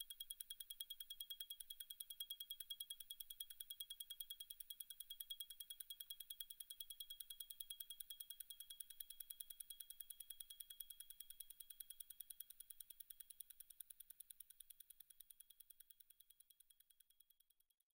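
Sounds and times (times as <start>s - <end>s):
fast high-pitched watch ticking: 0.0s - 17.4s.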